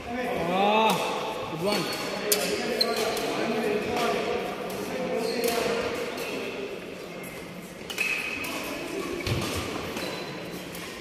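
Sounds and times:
shoes squeaking on court: 2.7 - 3.3, 7.2 - 11.0.

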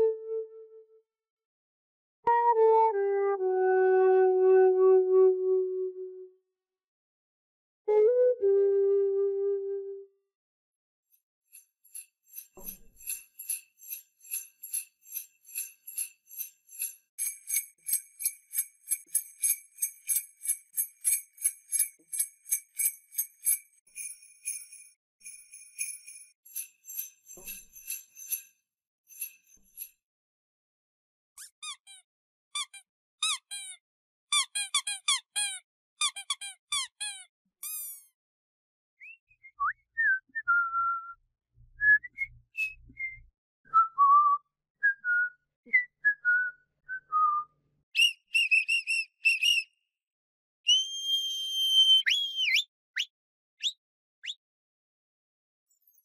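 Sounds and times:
small bells jingling: 11.5 - 29.9
squeaky dog toy squeaking: 31.4 - 32.0, 32.6 - 38.2.

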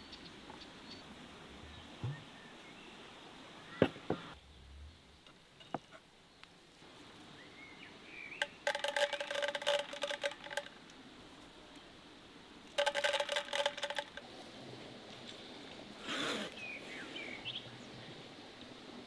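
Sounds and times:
peppercorns rattling into barrel: 8.4 - 10.8, 12.7 - 14.3.

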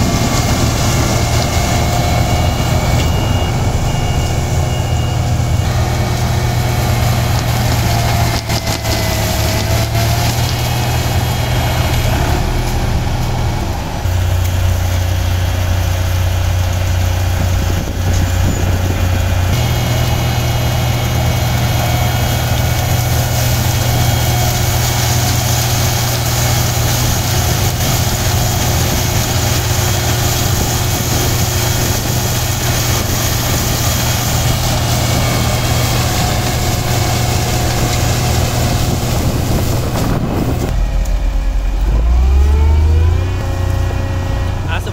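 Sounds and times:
diesel engines running under load: 0.0 - 44.9.

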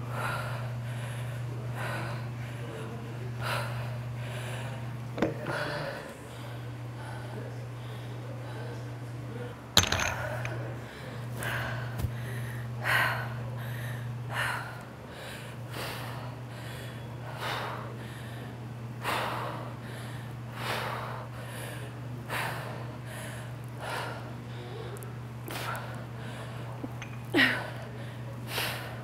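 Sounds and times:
woman breathing hard: 0.0 - 2.8, 10.9 - 29.0.

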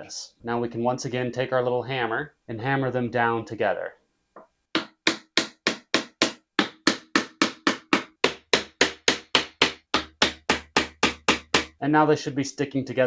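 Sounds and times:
wooden mallet tapping: 4.4 - 11.8.

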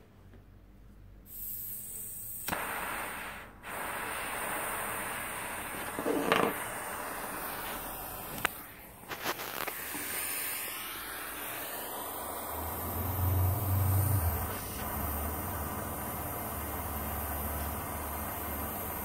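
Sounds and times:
butane torch flame hissing: 1.2 - 19.0
gas rush: 1.3 - 19.0
torch clicks: 2.4 - 13.6.

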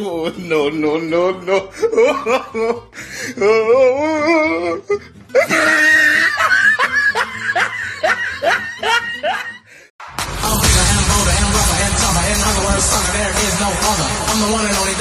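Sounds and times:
person laughing hard: 1.4 - 2.9, 4.0 - 9.8.

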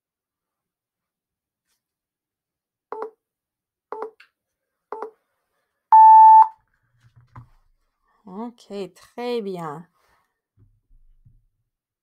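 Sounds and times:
countdown timer beeps: 6.0 - 6.5.

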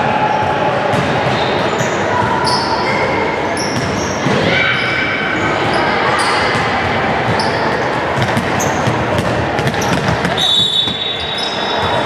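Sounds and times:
steady wash of hall noise: 0.0 - 12.0
sneakers squeaking on wooden court: 0.9 - 12.0
basketball bouncing: 3.8 - 4.4, 6.5 - 11.1.

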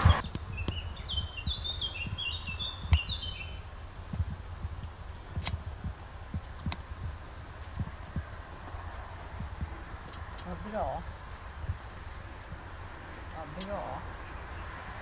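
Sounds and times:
songbird whistling: 0.0 - 3.7
faint low thumps: 0.0 - 14.2
sharp clicks: 4.1 - 6.9, 12.8 - 13.8.

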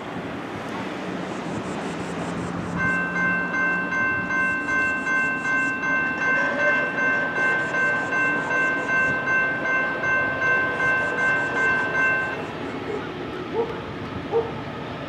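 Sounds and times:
crossing warning bell ringing: 2.1 - 13.1.

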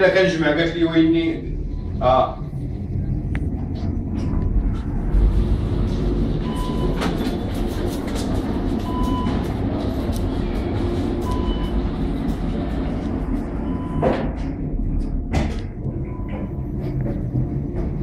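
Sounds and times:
elevator car rumbling in shaft: 0.0 - 18.0
short electronic beep: 6.4 - 7.0.

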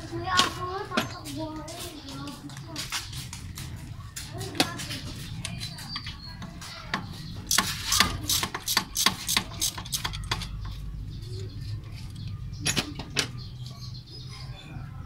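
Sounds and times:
hand tools clicking against metal: 6.9 - 10.8.

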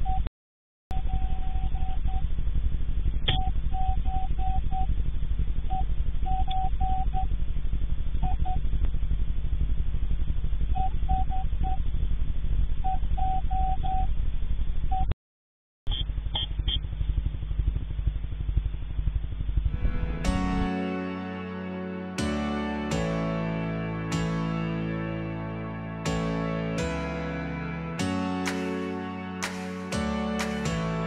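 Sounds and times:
low buzzing hum with fast pulse: 0.9 - 15.0, 15.9 - 22.0.

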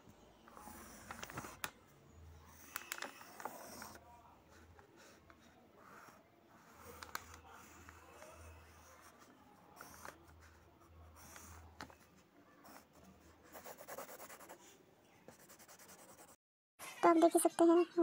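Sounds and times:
pencil scratching on paper: 2.5 - 11.7, 12.5 - 14.7, 15.3 - 16.4.

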